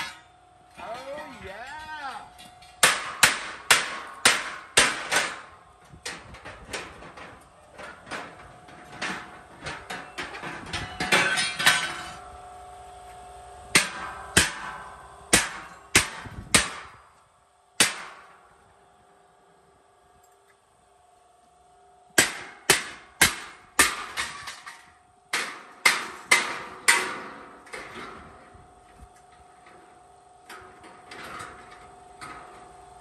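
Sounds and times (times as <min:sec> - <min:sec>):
hammer striking steel: 0:02.6 - 0:05.5, 0:13.7 - 0:17.0, 0:17.8 - 0:18.4, 0:22.2 - 0:27.5.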